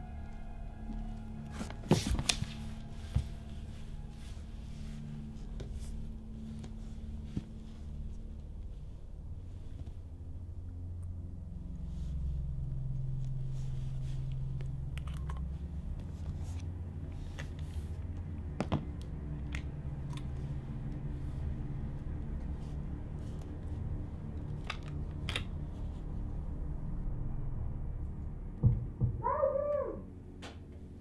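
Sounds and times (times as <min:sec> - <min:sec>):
low steady drone: 0:00.0 - 0:31.0
short wavering cry: 0:29.2 - 0:30.1.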